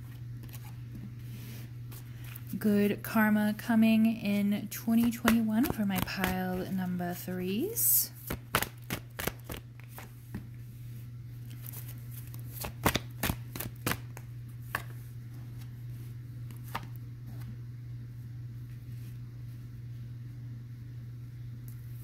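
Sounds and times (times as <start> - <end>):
steady low hum: 0.0 - 22.0
cards being shuffled: 0.1 - 1.1, 4.8 - 7.0, 8.2 - 10.5, 11.4 - 15.8, 16.4 - 17.5.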